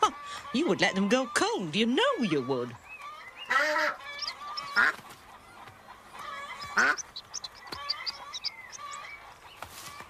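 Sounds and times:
chick peeping: 0.0 - 10.0
duck quacking: 3.5 - 5.0, 6.2 - 9.1.

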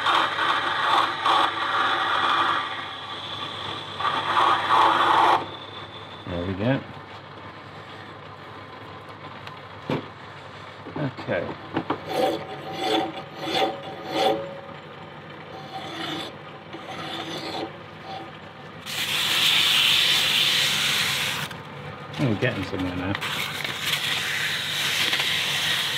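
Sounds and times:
file rasping on metal: 0.0 - 5.7, 11.9 - 14.7, 15.5 - 21.5, 23.2 - 25.9
continuous rasp: 0.0 - 6.2, 11.8 - 14.8, 15.4 - 21.5, 22.2 - 25.9.

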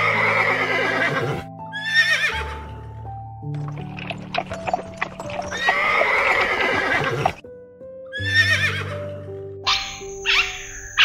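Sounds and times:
horse whinnying: 0.0 - 2.6, 5.2 - 7.4, 8.2 - 9.0
soft background music: 0.0 - 11.0.

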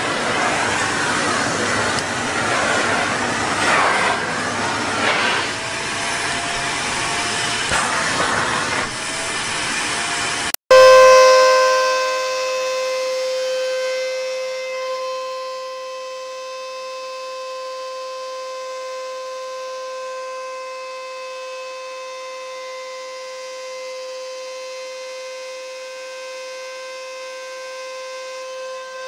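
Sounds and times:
vacuum cleaner rushing hiss: 0.0 - 10.5
vacuum cleaner high-pitched whine: 0.0 - 29.0.

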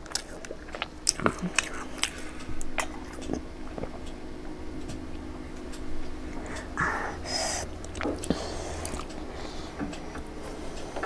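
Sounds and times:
breathy rush of air: 6.1 - 11.0
person swallowing: 6.4 - 9.2.

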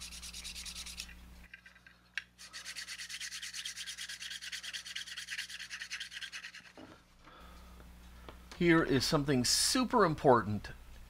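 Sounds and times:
hand-sanding plastic: 0.0 - 1.1, 2.4 - 6.8.

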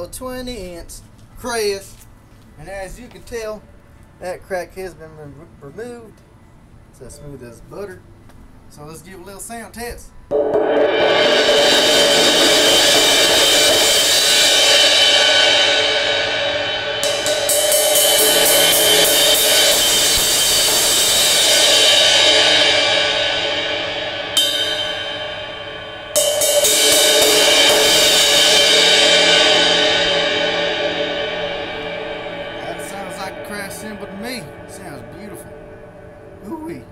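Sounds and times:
crash cymbal struck with mallet: 10.3 - 36.5.

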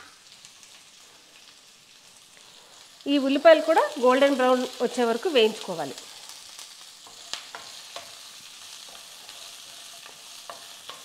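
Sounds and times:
onions sizzling in hot oil: 0.0 - 11.0
wooden spatula scraping pan: 8.8 - 11.0.

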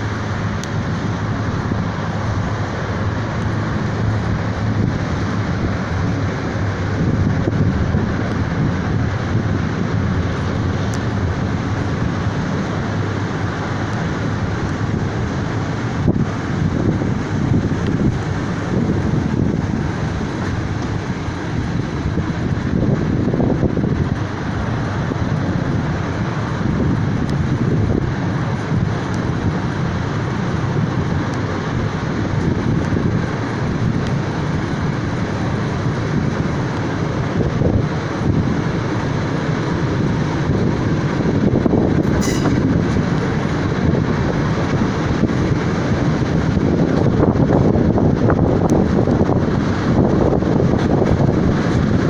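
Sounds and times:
train wheels rumbling on rails: 0.0 - 52.0
wind rush: 0.0 - 52.0
high-pitched screech: 42.2 - 42.6.

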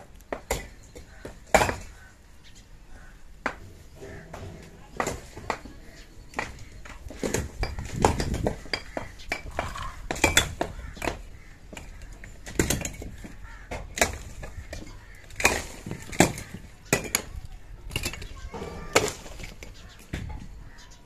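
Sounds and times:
hard objects knocking and clinking: 4.0 - 18.4.

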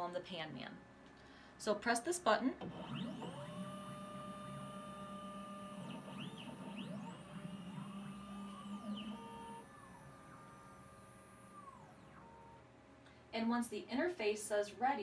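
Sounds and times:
motor whine: 2.6 - 12.8.

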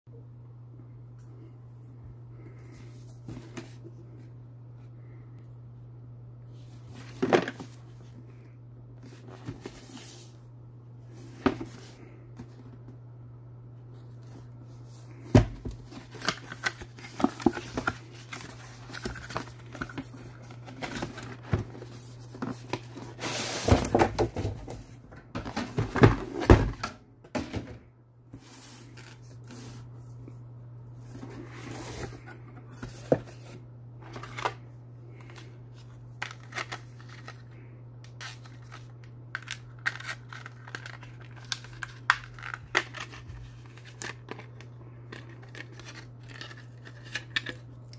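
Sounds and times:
steady low hum: 0.1 - 47.9
cardboard scraping and rustling: 14.0 - 26.8.

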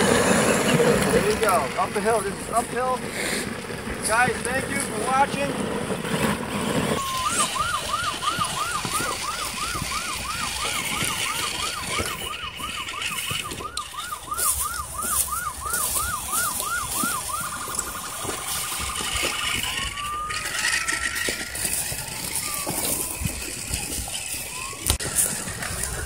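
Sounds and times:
electronic siren yelping: 7.0 - 26.0.

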